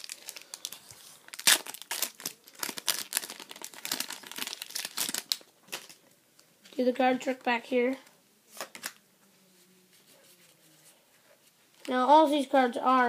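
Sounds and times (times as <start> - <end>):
foil wrapper tearing and crinkling: 0.0 - 6.0.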